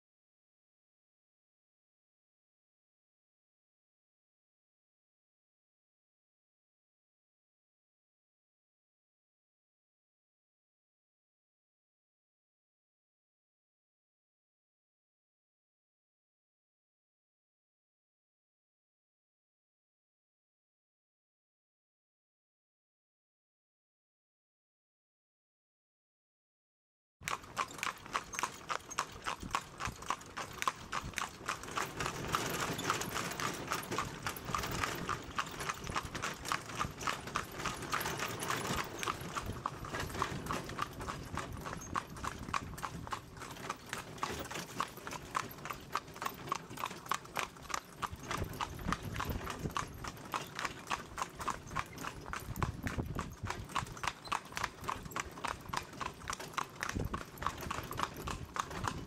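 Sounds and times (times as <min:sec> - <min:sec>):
hooves clip-clopping on tarmac: 0:27.3 - 0:59.0.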